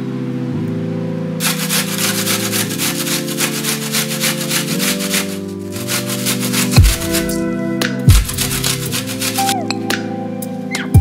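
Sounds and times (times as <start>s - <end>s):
onion scraping on metal grater: 1.4s - 7.4s, 8.2s - 9.6s.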